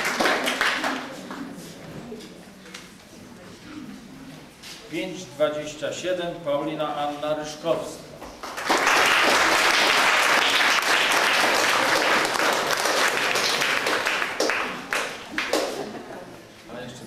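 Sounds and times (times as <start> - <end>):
audience applauding: 0.0 - 1.1, 8.4 - 15.9.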